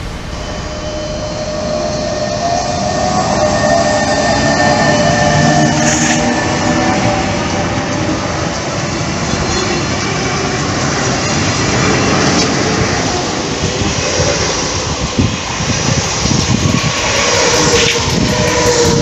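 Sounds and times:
train running on rails: 0.0 - 19.0.

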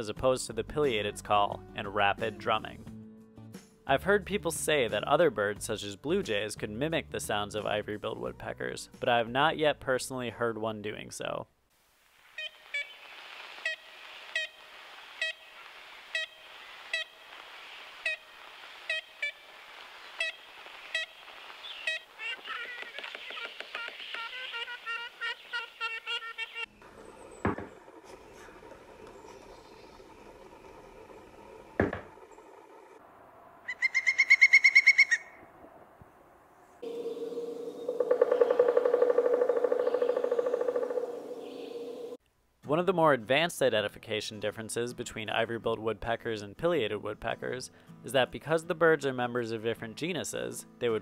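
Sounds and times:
recording hiss: 11.2 - 22.2
rapid high bird notes: 12.3 - 27.4, 36.8 - 42.2
woodpecker nasal calls: 12.3 - 32.6, 33.7 - 35.4, 36.8 - 42.2.

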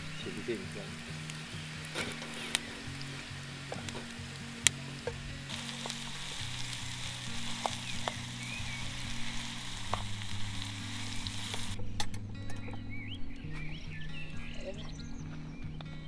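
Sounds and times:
food sizzling as it fries: 0.0 - 11.8
sharp pops and crackles: 0.0 - 16.0
soft background music: 0.0 - 16.0.

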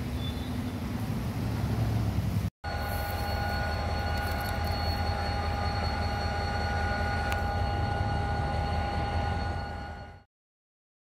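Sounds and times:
diesel locomotive engine rumbling: 0.0 - 10.3
steady high-pitched tone: 2.6 - 10.3.

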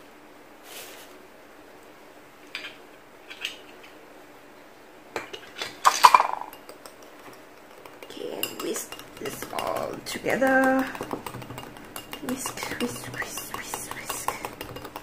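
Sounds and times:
whisk clinking against ceramic bowl: 5.9 - 15.0.

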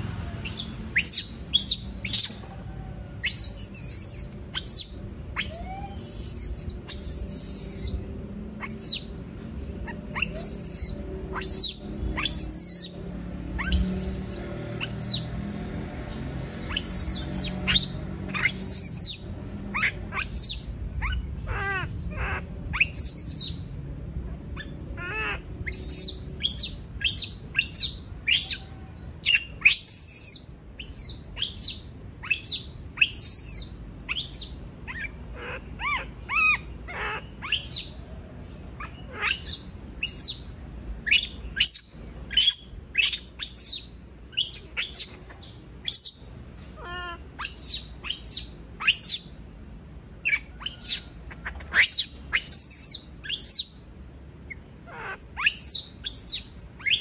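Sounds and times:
monkey screaming: 0.3 - 9.2, 9.8 - 15.3, 16.7 - 23.7, 24.5 - 38.0, 38.8 - 46.2, 46.8 - 49.3, 50.2 - 53.8, 54.5 - 57.0.

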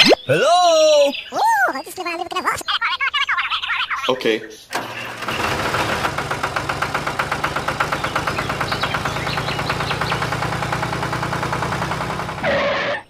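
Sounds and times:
engine idling with rhythmic chug: 4.8 - 12.5.

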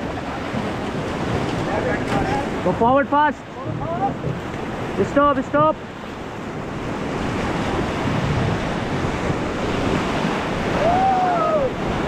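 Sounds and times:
rushing whitewater: 0.0 - 12.0
wind on the microphone: 3.4 - 12.0.

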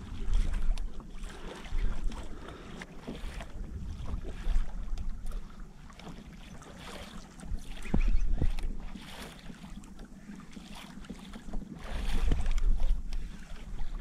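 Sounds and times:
wind buffeting microphone: 0.0 - 5.6, 7.3 - 9.0, 11.4 - 14.0
water slapping against hull: 0.0 - 14.0.

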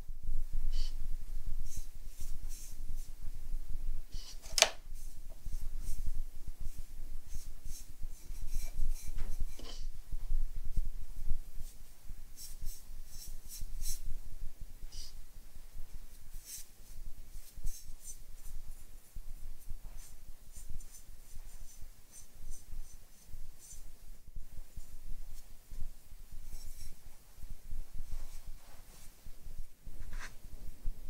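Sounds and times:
brush dabbing glaze on clay: 1.6 - 3.2, 4.1 - 9.9, 11.5 - 14.2, 15.9 - 24.1, 24.7 - 29.2, 29.9 - 30.4.

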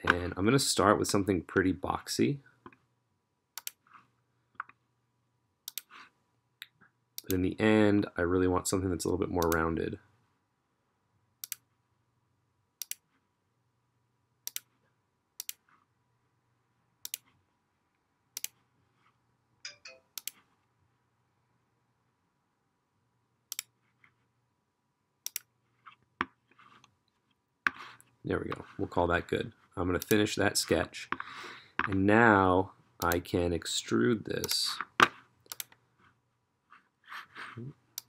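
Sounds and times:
computer mouse clicks: 3.6 - 3.8, 5.6 - 6.0, 11.4 - 11.6, 12.8 - 13.1, 14.4 - 14.7, 15.4 - 15.7, 17.0 - 17.3, 18.4 - 18.6, 20.2 - 20.4, 23.5 - 23.8, 25.2 - 25.5, 35.4 - 35.8.

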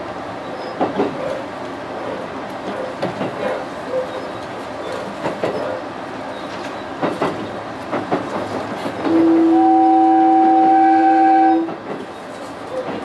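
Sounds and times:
train rolling over rails: 0.0 - 13.0
wheels clicking over rail joints: 0.5 - 9.6, 11.4 - 13.0
train horn blast: 9.0 - 11.8.

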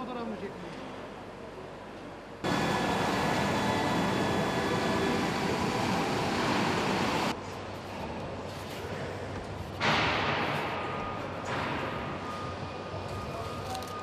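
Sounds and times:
factory machine hum: 0.1 - 14.0.

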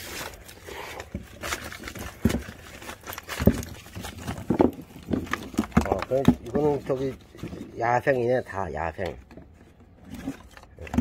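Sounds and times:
rustling of mesh bag and paper: 0.0 - 8.7.

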